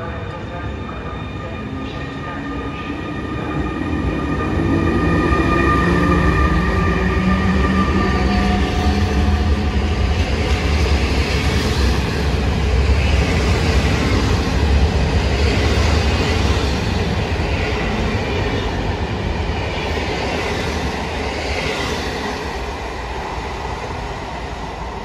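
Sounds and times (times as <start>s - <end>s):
train wheels rumbling on rails: 1.8s - 25.0s.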